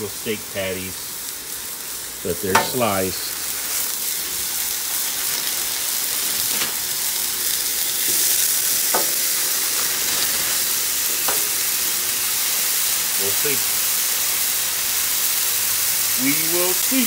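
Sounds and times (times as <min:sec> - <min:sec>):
meat sizzling on a griddle: 0:00.0 - 0:17.0.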